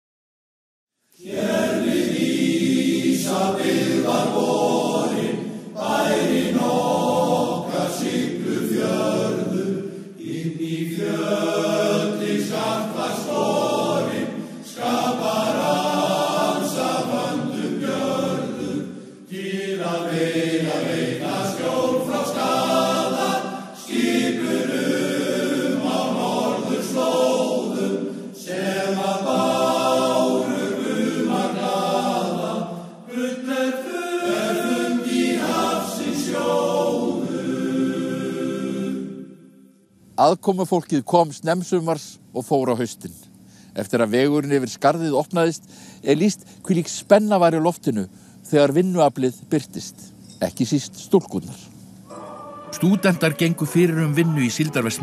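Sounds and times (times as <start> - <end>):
choir singing: 1.2 - 39.7, 52.0 - 55.0.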